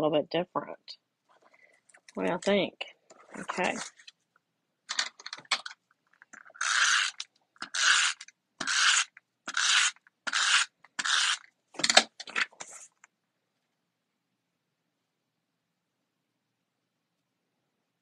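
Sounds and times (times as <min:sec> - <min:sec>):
tape runner scraping across card: 0:06.4 - 0:12.8.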